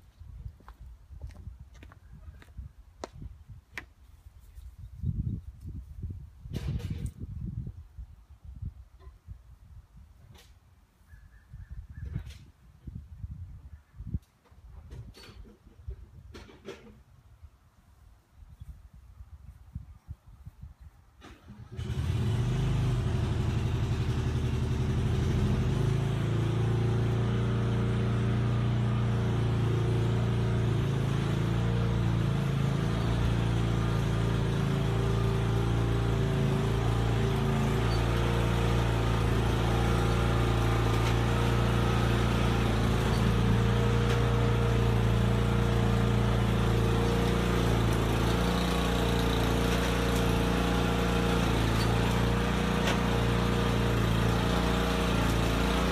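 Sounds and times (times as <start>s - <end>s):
lawn mower engine running: 21.2s - 55.9s.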